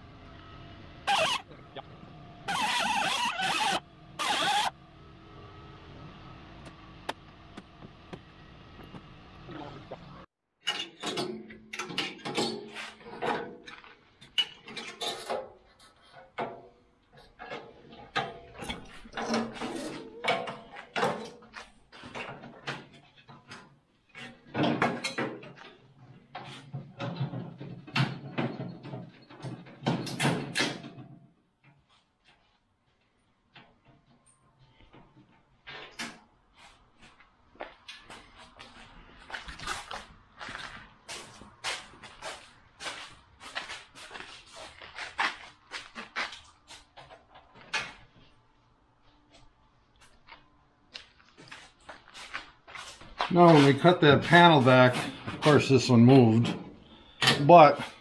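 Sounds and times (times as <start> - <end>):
cut-off wheel grinding steel: 0.9 - 7.6
sheet steel and tools clanking: 10.6 - 31.1.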